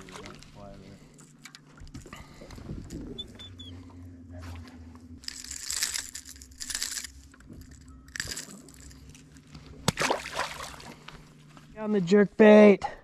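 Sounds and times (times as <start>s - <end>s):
faint low hum: 0.0s - 13.0s
rustling crunching handling noise: 4.4s - 9.9s.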